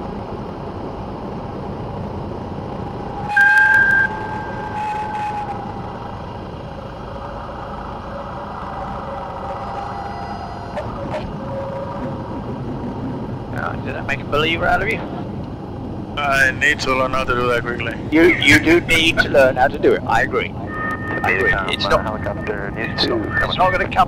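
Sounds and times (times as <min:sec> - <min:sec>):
aircraft engine idling: 0:00.0 - 0:03.4, 0:04.0 - 0:24.0
tyre squeal: 0:03.2 - 0:06.2.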